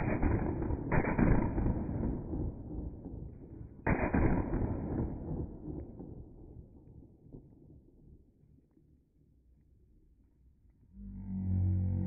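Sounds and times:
slowed firecracker booms: 0:00.0 - 0:07.6.

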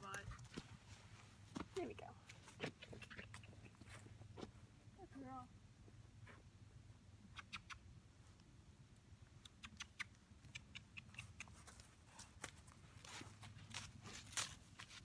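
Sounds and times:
horse stepping over dry grass: 0:11.5 - 0:15.0.

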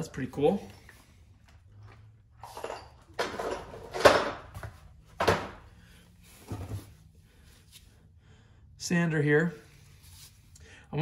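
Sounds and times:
tools clunking in cardboard box: 0:02.4 - 0:05.6.

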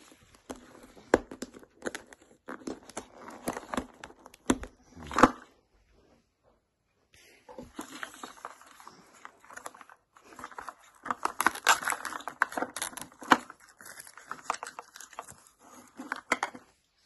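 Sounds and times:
paper wrapping rustling: 0:07.6 - 0:16.6.

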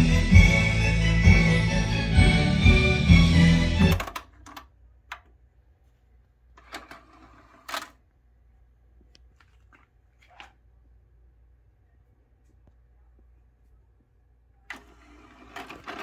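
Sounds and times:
cassette mechanism whirring: 0:03.1 - 0:04.6, 0:14.7 - 0:16.0.

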